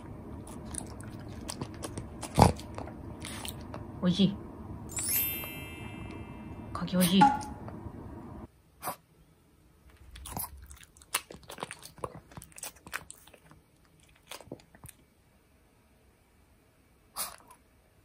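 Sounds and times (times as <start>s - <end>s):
dog chewing with wet crunching: 0.0s - 3.9s, 9.9s - 15.2s.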